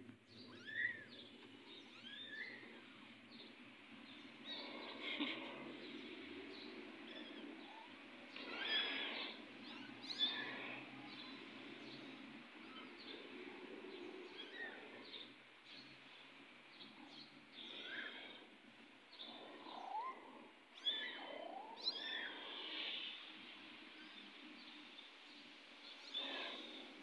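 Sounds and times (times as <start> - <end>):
kittens mewing: 6.8 - 12.0.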